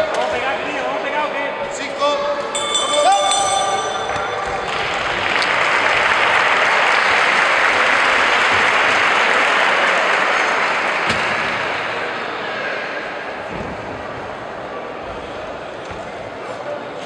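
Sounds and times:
audience applauding: 4.2s - 11.6s.

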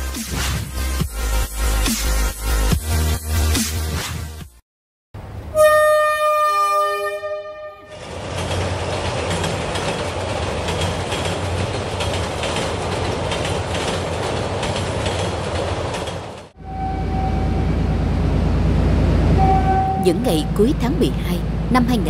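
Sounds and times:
locomotive horn chord: 5.5s - 8.0s, 16.6s - 18.0s, 19.3s - 20.6s
train wheels rumbling on rails: 7.9s - 22.0s.

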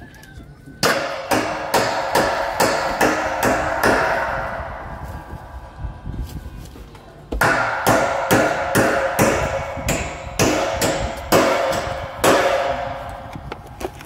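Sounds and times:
ringing hammer blows: 7.4s - 13.5s.

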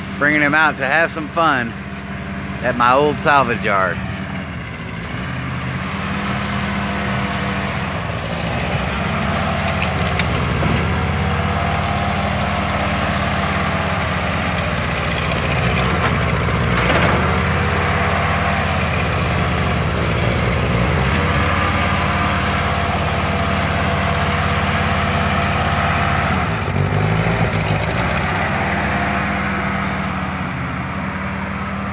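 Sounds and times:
tractor engine running: 0.0s - 31.9s
loader bucket crunching debris: 2.6s - 31.7s.

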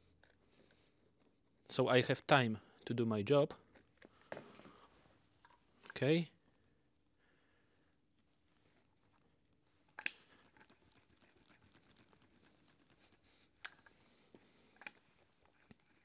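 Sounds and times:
rubbing and scraping: 10.3s - 13.6s.

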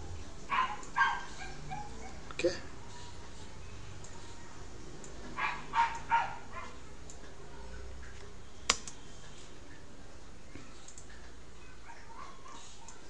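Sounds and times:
dog barking: 0.5s - 2.2s, 5.4s - 6.8s, 11.8s - 13.0s.

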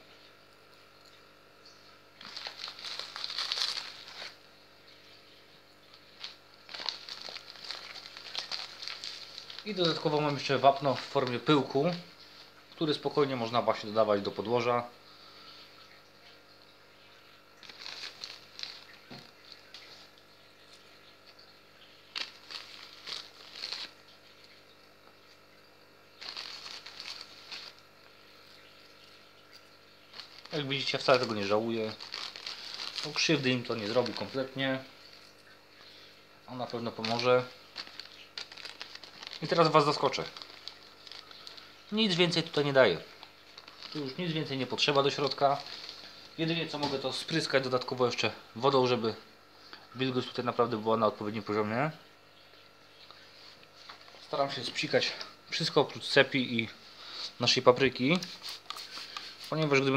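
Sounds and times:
plastic packet rustling: 2.2s - 4.4s, 5.9s - 12.4s, 17.6s - 20.2s, 22.0s - 24.2s, 26.2s - 35.4s, 36.5s - 48.2s, 58.2s - 59.9s.

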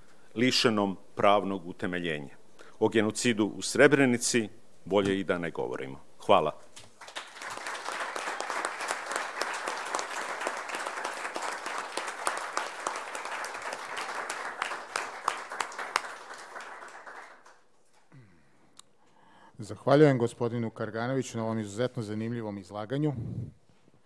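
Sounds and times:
audience applauding: 7.0s - 17.7s.

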